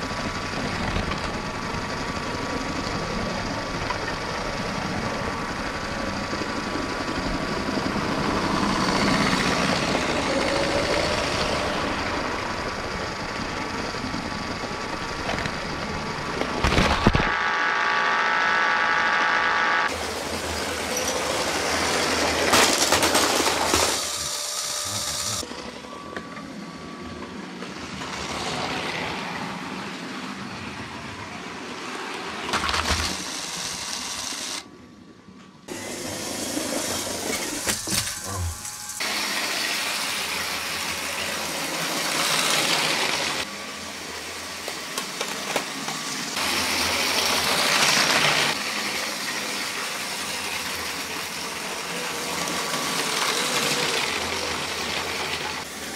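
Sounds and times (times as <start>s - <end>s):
toy train motors whirring: 16.7s - 25.5s, 32.4s - 34.7s, 35.7s - 55.9s
plastic wheels rattling on track: 21.2s - 24.1s.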